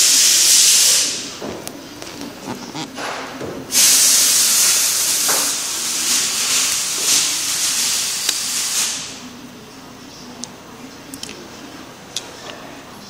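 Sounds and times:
air hissing from tool: 0.0 - 1.4, 3.7 - 9.2.

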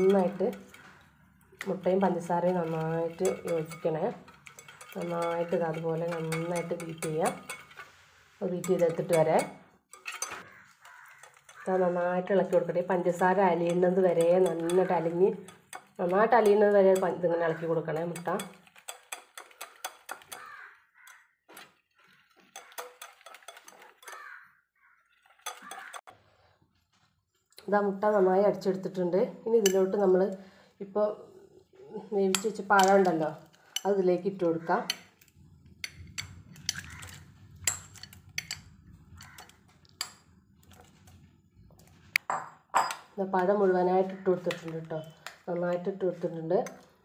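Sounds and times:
whisk clicking against bowl: 1.6 - 7.8, 8.6 - 11.6, 13.2 - 17.2, 18.0 - 20.5, 22.5 - 24.2
liquid swishing: 1.8 - 8.4
cutlery clinking against dishes: 3.2 - 7.8, 8.6 - 11.6, 18.1 - 20.5, 22.4 - 24.3, 25.4 - 26.0.

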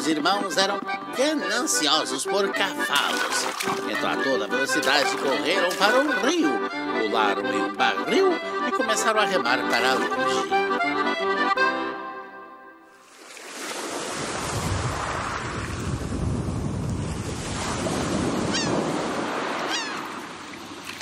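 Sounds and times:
accordion music: 0.0 - 13.0
rushing river water and surf: 2.9 - 6.2, 12.9 - 21.0.

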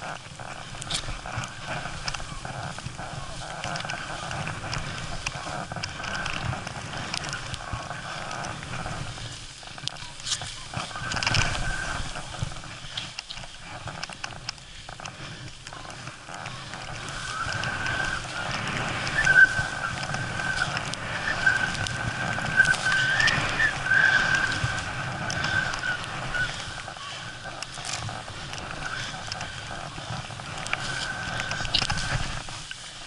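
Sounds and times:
skis running through powder snow: 0.0 - 33.0
wind rushing over microphone: 0.0 - 33.0
thin high whistle: 19.1 - 21.8, 22.4 - 24.7.

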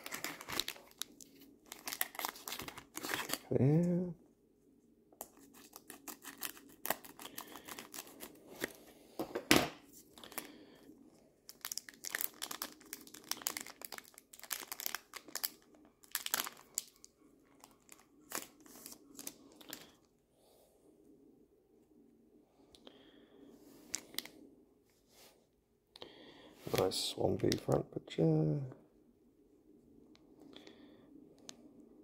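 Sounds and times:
foil wrapper crinkling: 0.0 - 3.8, 5.2 - 8.8, 11.5 - 20.0.

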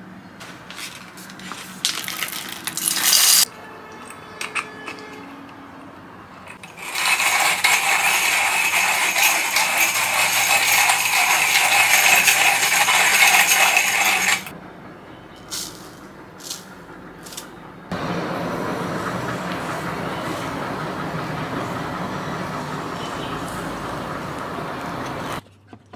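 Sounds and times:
coffee grinder crunching beans: 1.4 - 3.5, 6.6 - 14.5.

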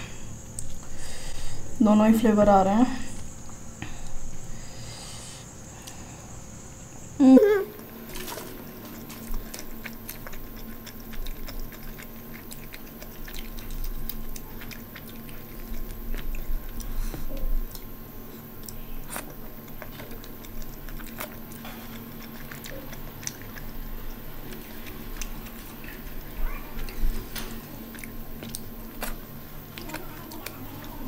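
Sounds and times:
faint steady hum: 0.0 - 31.0
chewing and wet mouth noises: 7.7 - 31.0.

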